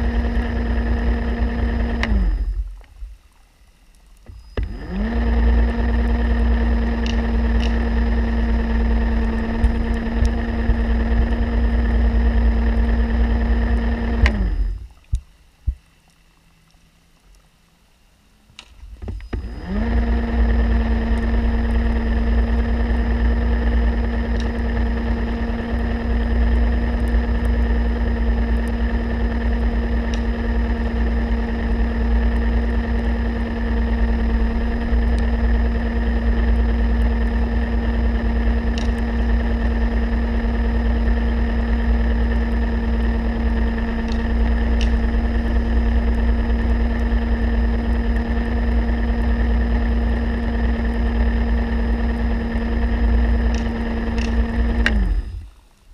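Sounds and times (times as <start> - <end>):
underwater motor hum and whine: 0.0 - 55.9
faint sharp clicks: 53.5 - 55.9.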